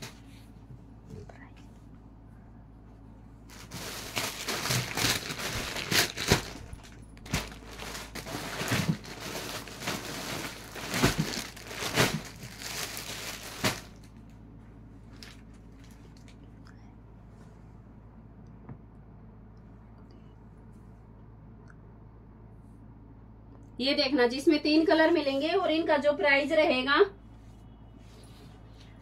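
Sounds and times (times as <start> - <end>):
fabric and wrapping crinkling: 3.4 - 14.4, 15.0 - 16.4.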